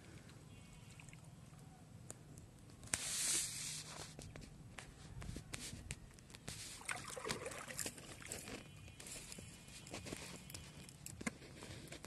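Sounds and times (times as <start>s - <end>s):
water trickling and sloshing: 6.7s - 9.0s
fish splashing out of water: 6.8s - 8.3s.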